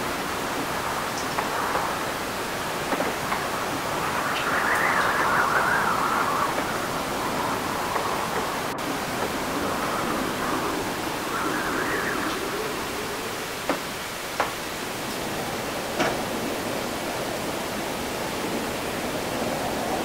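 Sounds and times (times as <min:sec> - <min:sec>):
city ambience: 0:00.0 - 0:20.0
wavering rise and fall of pitch: 0:00.7 - 0:14.3.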